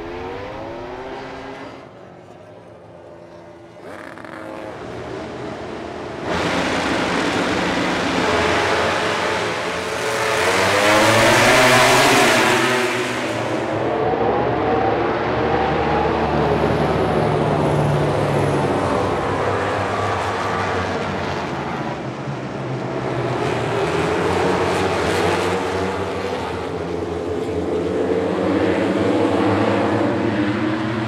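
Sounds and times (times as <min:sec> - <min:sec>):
racing motorcycles accelerating: 0:03.0 - 0:22.1.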